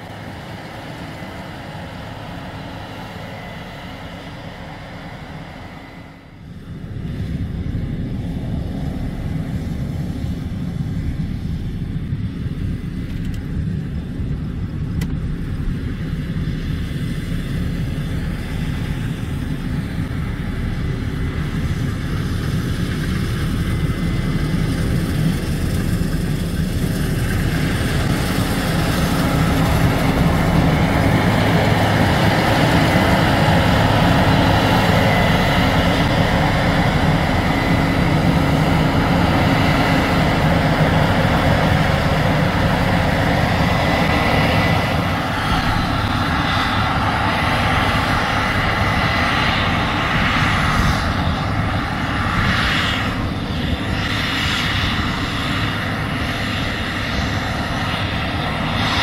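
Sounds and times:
combine harvester engine and threshing hum: 0:00.0 - 0:59.0.

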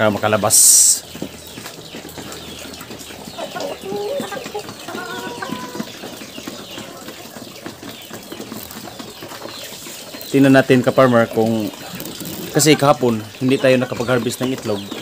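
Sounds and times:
chickens clucking: 0:00.0 - 0:15.0
small clicks and rustling: 0:04.2 - 0:10.3, 0:11.7 - 0:12.6.

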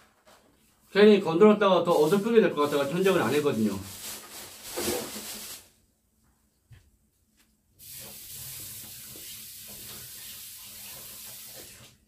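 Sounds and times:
steady hiss: 0:01.8 - 0:05.8, 0:07.8 - 0:12.0.

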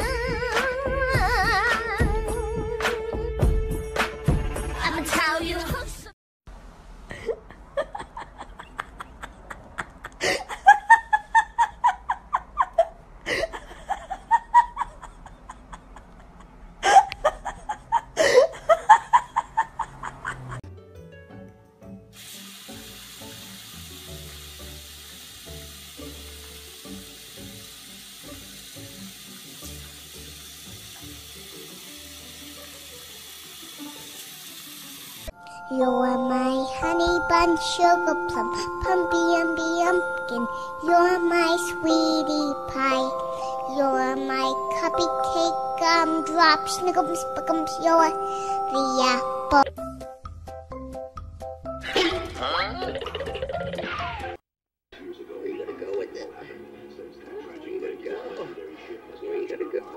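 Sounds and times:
person laughing: 0:07.1 - 0:20.6, 0:51.8 - 0:54.0
faint music: 0:55.0 - 0:59.9.

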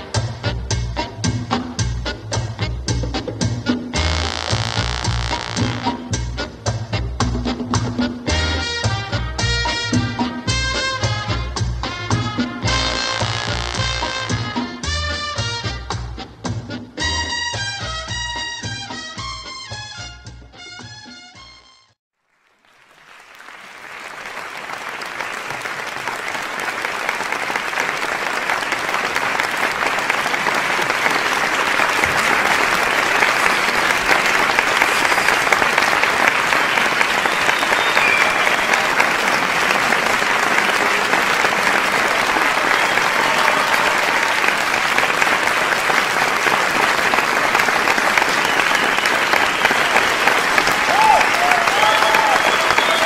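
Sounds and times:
audience applauding: 0:22.2 - 0:53.0.

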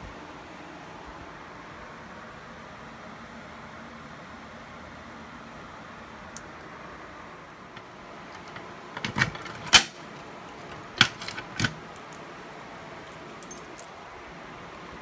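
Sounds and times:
fire alarm pull station clicks: 0:07.8 - 0:10.0, 0:10.7 - 0:11.8.

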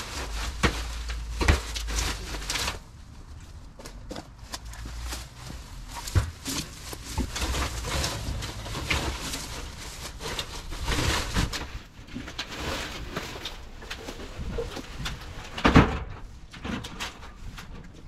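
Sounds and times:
dry grass rustling and crackling: 0:00.0 - 0:18.0.

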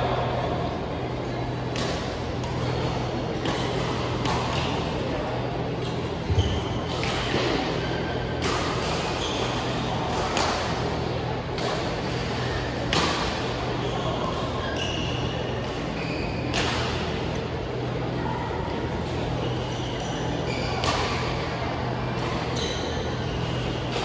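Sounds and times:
steady low hum: 0:00.0 - 0:24.0
racket hitting shuttlecock: 0:01.6 - 0:02.8, 0:03.4 - 0:04.8, 0:08.3 - 0:10.9, 0:11.5 - 0:12.1, 0:12.8 - 0:13.5, 0:16.5 - 0:17.1, 0:20.8 - 0:21.4.

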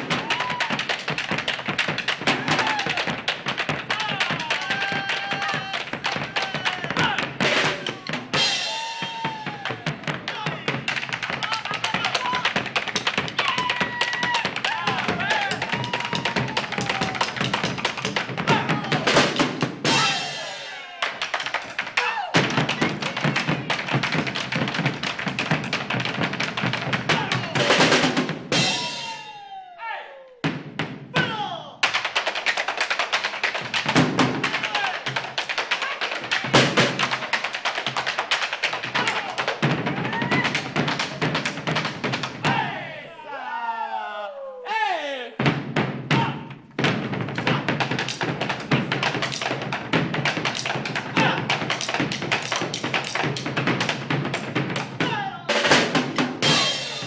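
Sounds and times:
drum kit: 0:00.0 - 0:20.9, 0:22.4 - 0:29.4, 0:45.4 - 0:57.0.

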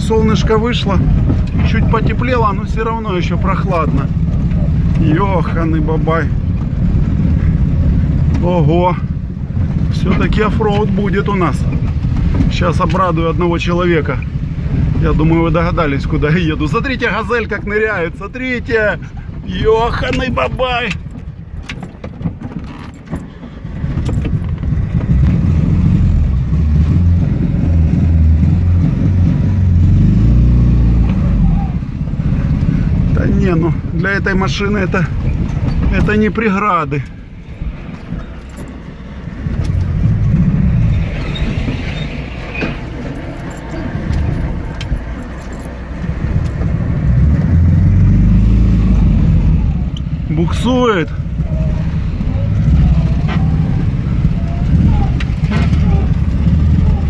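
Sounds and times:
car engine under load: 0:00.0 - 0:57.0
light rattles: 0:19.0 - 0:26.6, 0:33.7 - 0:47.2.

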